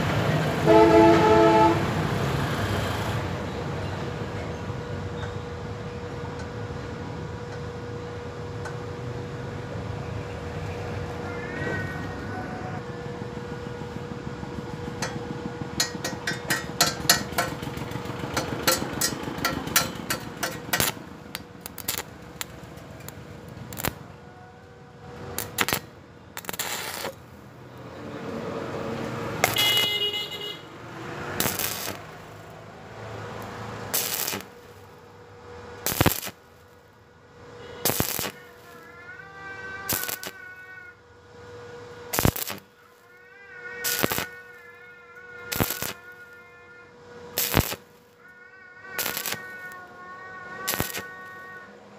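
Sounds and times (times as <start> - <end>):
welding arc crackling: 14.9 - 24.2, 25.1 - 37.0, 37.8 - 39.0, 39.6 - 40.8, 42.0 - 46.5, 47.2 - 48.3, 48.9 - 51.7.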